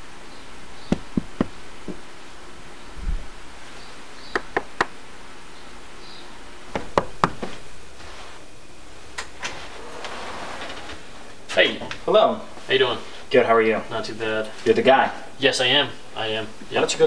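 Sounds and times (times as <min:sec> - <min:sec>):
knocking on wooden door: 0:00.9 - 0:02.0.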